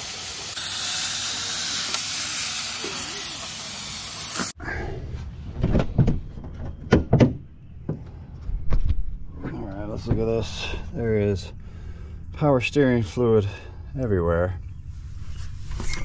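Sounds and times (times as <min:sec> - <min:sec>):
steam venting hiss: 0:00.0 - 0:04.6.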